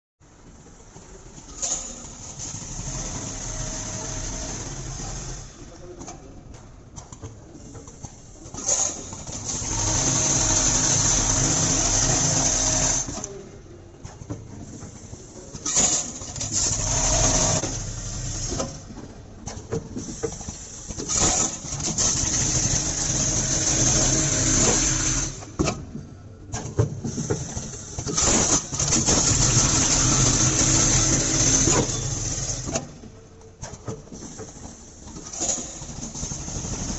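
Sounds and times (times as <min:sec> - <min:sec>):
pneumatic clicks: 0:06.0 - 0:09.5, 0:14.0 - 0:22.7, 0:26.5 - 0:36.3.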